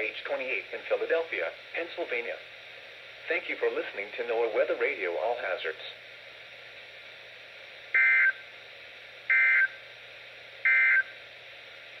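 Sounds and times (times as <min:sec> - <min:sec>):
faint steady hiss: 0:00.0 - 0:12.0.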